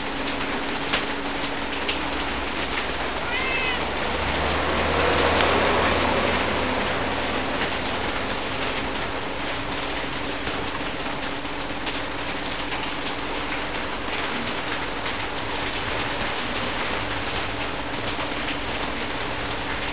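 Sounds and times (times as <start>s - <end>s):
rain hissing: 0.0s - 19.9s
cat meowing: 3.2s - 4.0s.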